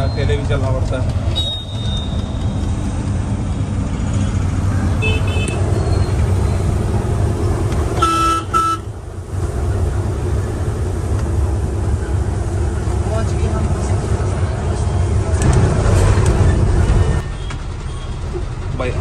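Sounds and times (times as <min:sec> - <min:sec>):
truck engine and tyres rumbling: 0:00.0 - 0:19.0
loud horn blasts: 0:05.0 - 0:05.6, 0:08.0 - 0:09.0.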